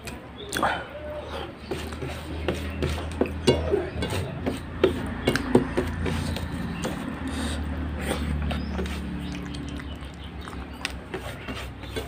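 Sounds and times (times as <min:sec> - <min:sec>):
hand scraping steel plate: 0:01.6 - 0:09.1, 0:11.0 - 0:12.0
wet squishing of food: 0:01.7 - 0:12.0.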